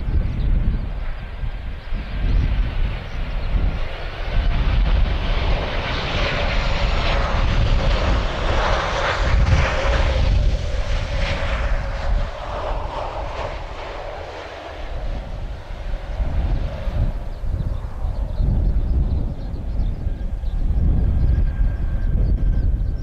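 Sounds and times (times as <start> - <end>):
jet engines rumbling and whining: 0.0 - 23.0.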